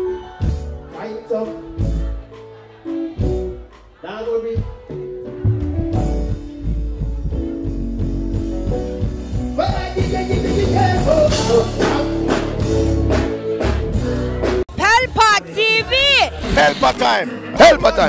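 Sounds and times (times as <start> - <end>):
live band music: 0.0 - 18.0
person singing: 9.6 - 14.6.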